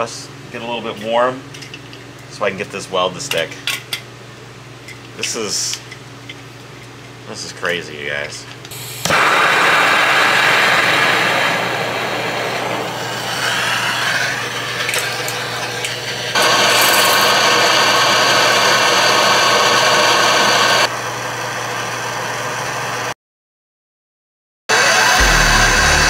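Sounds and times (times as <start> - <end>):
gas torch hissing: 8.7 - 20.9.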